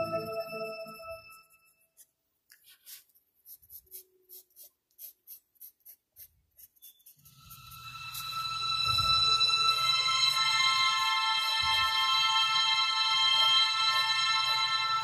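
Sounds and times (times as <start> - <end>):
background music: 0.0 - 1.6, 7.3 - 15.0
pencil scratching on paper: 1.3 - 8.3.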